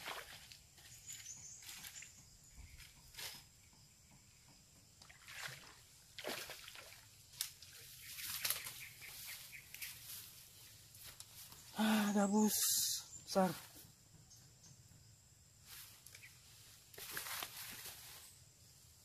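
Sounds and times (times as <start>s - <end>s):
water splashing and sloshing: 0.0s - 3.1s, 4.8s - 8.7s.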